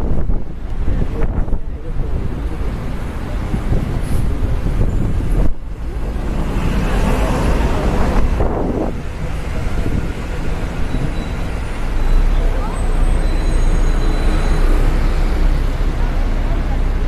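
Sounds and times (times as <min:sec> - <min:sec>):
wind buffeting microphone: 0:00.0 - 0:11.7
bus in traffic: 0:00.0 - 0:17.0.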